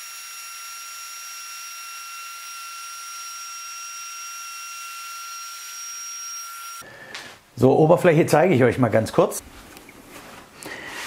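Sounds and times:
router cutting wood: 0.0 - 6.8.

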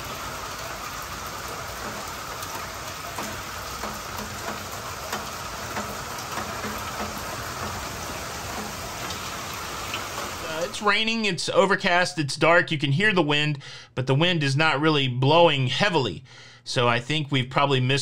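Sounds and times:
steady rain on enclosure: 0.0 - 11.0
drops ticking: 1.5 - 10.5.

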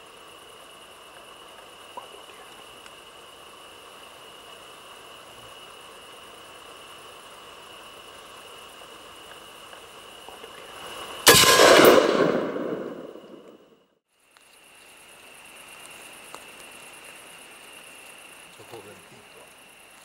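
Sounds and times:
rifle shot echoing: 11.3 - 13.6.

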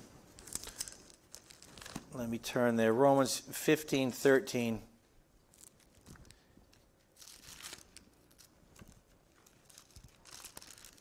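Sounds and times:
thin pages turning: 0.4 - 2.1, 5.5 - 11.0.

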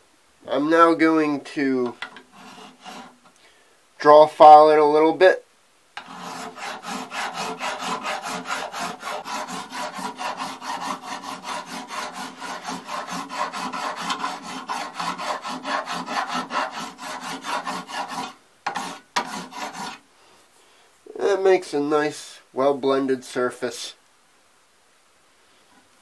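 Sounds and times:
file rasping on brass: 2.1 - 3.2, 6.0 - 20.0.

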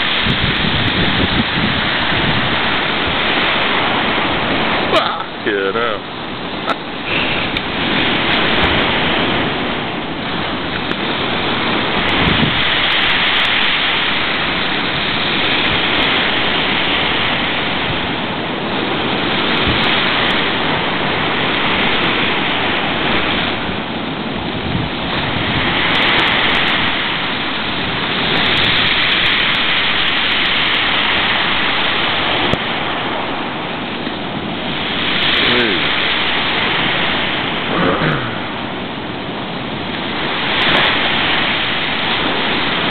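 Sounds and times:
gale-force wind: 0.0 - 42.9
heavy surf breaking: 0.0 - 42.9.

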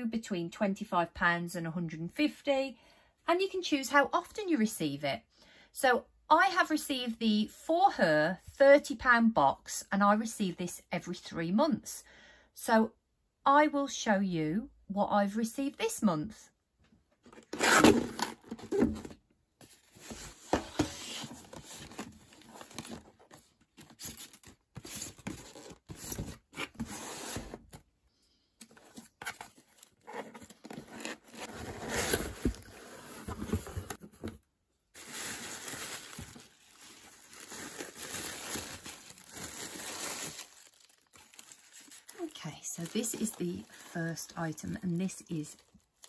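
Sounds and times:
cardboard tearing: 17.4 - 19.1, 28.8 - 34.3, 35.0 - 43.9
tissue paper rustling: 35.0 - 44.3.

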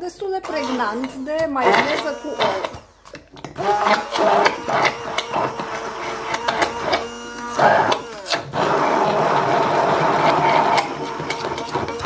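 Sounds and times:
immersion blender running: 0.4 - 12.0.

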